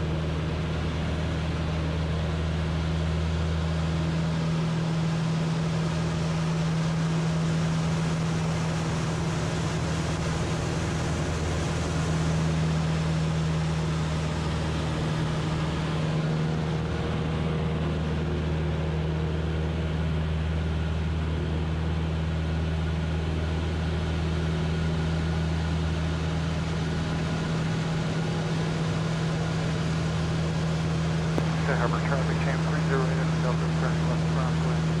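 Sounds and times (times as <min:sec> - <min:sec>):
propeller engine droning: 0:00.0 - 0:35.0.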